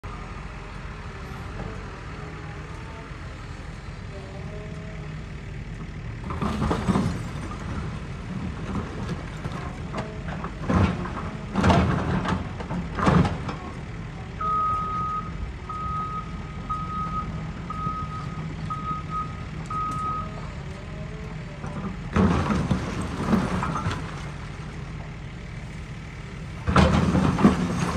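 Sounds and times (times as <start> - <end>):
excavator diesel engine running: 0.0 - 27.9
crashes of falling debris: 26.6 - 27.9.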